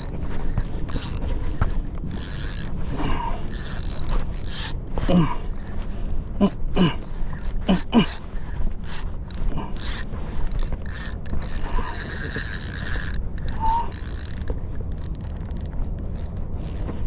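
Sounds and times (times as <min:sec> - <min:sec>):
fishing reel ratcheting clicks: 0:00.0 - 0:02.8, 0:03.4 - 0:04.8, 0:07.3 - 0:17.0
steady low rumble: 0:00.0 - 0:17.0.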